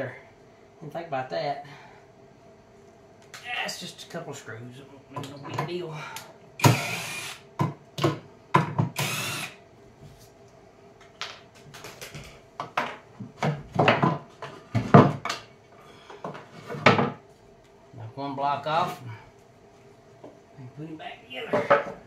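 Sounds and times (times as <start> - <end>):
cordless drill running: 6.6 - 7.4, 9.0 - 9.6
wood knocking and clunking: 12.1 - 15.4.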